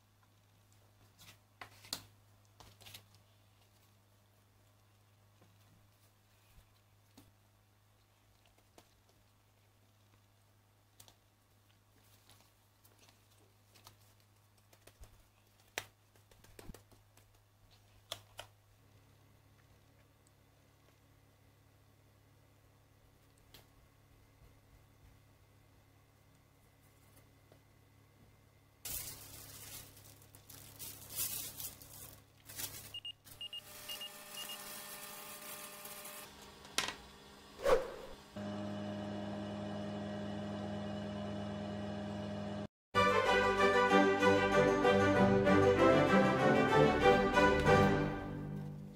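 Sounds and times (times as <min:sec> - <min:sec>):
hands patting dough on tray: 0:13.9 - 0:17.6
plastic sheet rustling: 0:28.8 - 0:33.5
oven humming: 0:33.3 - 0:42.7.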